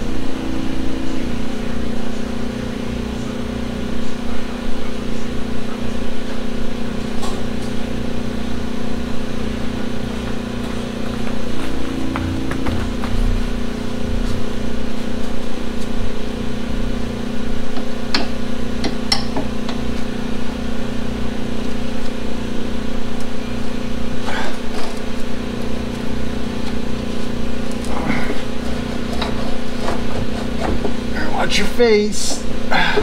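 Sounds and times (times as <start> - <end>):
steady mechanical hum: 0.0 - 33.0.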